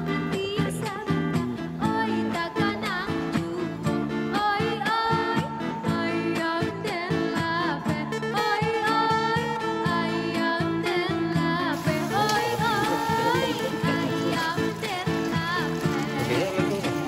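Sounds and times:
person singing: 0.0 - 17.0
plucked strings with steady beat: 9.6 - 17.0.

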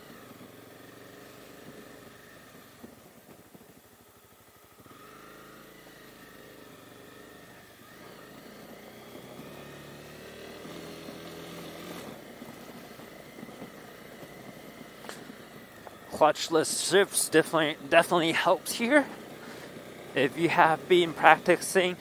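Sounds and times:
motorcycle engine revving: 0.0 - 22.0
gear upshift: 4.6 - 22.0.

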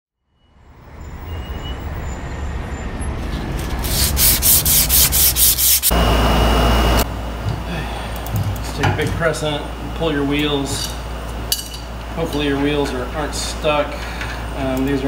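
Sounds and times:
abrasive cloth rasping on axle: 3.5 - 5.9.

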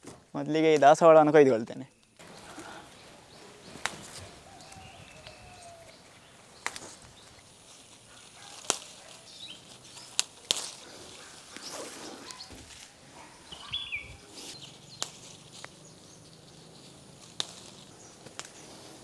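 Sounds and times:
faint bird calls: 1.9 - 19.0
flower stalks snapping: 3.6 - 13.3, 14.2 - 19.0.

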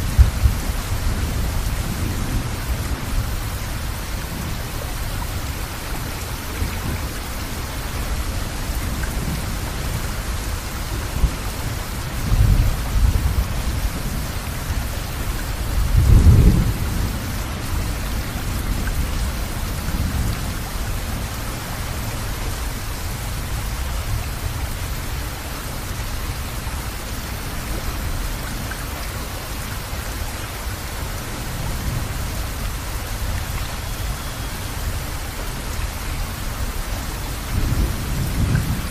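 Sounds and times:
thunder rumbling: 0.0 - 7.2, 8.2 - 21.3, 36.6 - 38.9
steady rain: 0.0 - 38.9.

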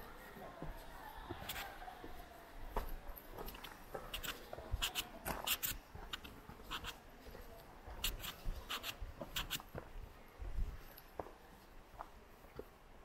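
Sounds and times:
scratchy footsteps: 0.6 - 10.0.

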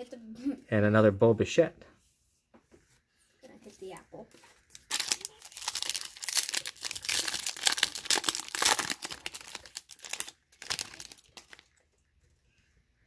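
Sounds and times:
foil wrapper tearing and crinkling: 4.7 - 11.7.

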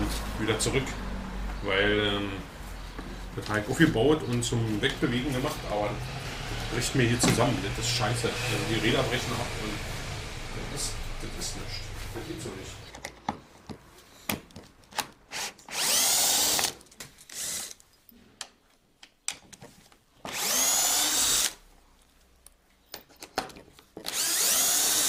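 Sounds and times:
cordless drill driving screws: 15.0 - 17.8, 20.3 - 21.6, 24.0 - 25.0
small clicks and knocks: 18.4 - 20.0.

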